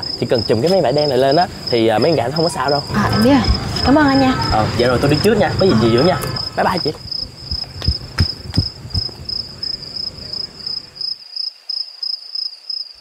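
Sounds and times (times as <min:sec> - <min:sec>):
crickets chirping: 0:00.0 - 0:13.0
running footsteps: 0:02.9 - 0:09.4.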